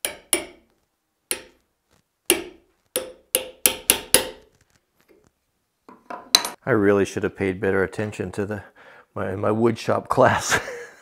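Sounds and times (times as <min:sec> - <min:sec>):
hammer tapping steel punch: 0:00.0 - 0:00.6, 0:01.3 - 0:01.6, 0:02.3 - 0:04.4.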